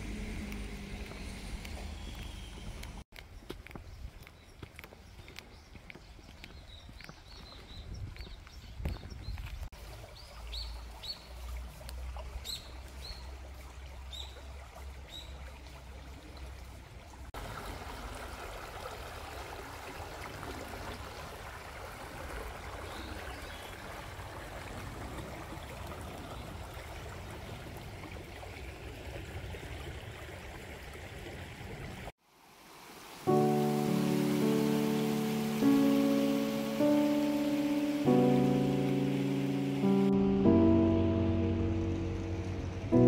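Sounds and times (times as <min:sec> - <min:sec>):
low rumble: 0:00.0 - 0:03.0, 0:40.0 - 0:43.0
small birds chirping: 0:00.4 - 0:11.4
river running over rocks: 0:32.3 - 0:40.6.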